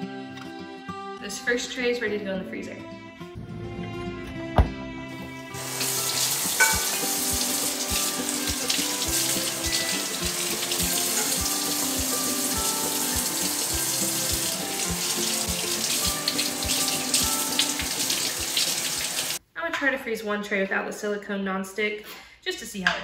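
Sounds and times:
beans rinsed by hand: 5.5 - 19.4
faucet running into sink: 5.5 - 19.4.

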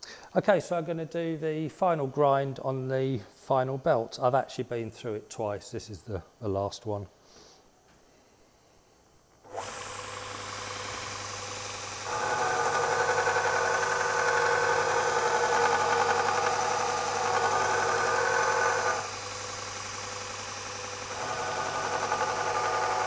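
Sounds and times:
belt sander motor humming: 9.4 - 23.0.

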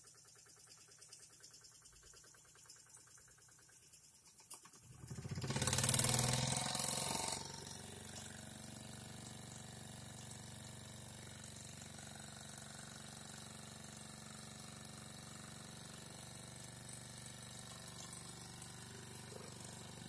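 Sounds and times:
toy steam engine running: 4.9 - 20.0.

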